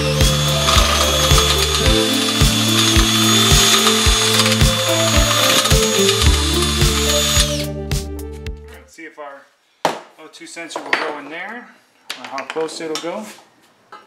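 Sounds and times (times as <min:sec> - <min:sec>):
drill bit squealing through steel: 0:00.0 - 0:07.7
background music with beat: 0:00.0 - 0:08.8.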